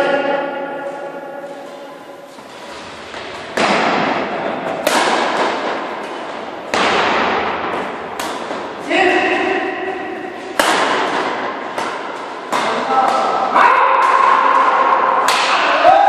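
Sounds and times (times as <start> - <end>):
rackets striking shuttlecock: 3.0 - 8.8, 9.4 - 15.8.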